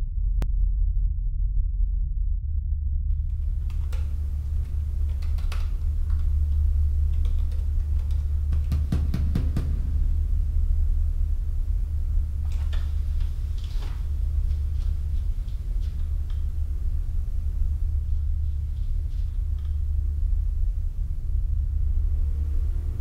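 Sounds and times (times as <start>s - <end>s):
steady low hum: 0.0s - 23.0s
light clicks and taps: 3.2s - 9.2s.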